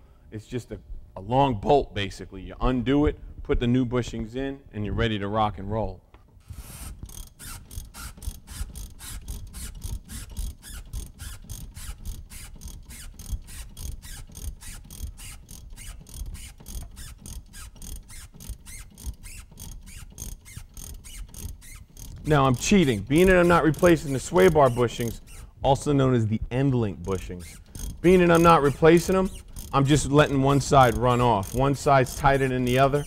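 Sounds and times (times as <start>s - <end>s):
ratchet wrench clicking: 6.4s - 25.6s, 27.0s - 33.0s.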